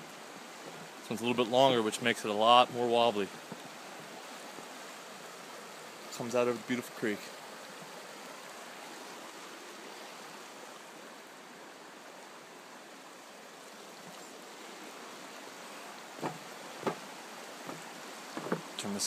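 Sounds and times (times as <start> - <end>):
creek rushing over rocks: 0.0 - 19.0
short knocks: 16.2 - 18.8.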